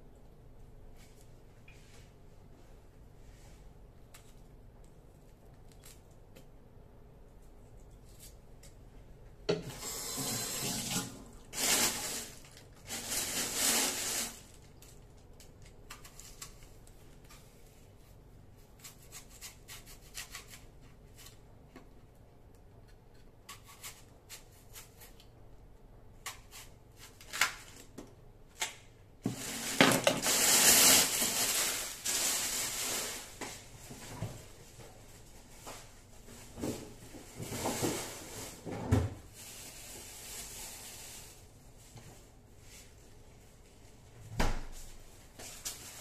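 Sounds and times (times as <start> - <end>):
kitchen tap water running: 9.7 - 11.4.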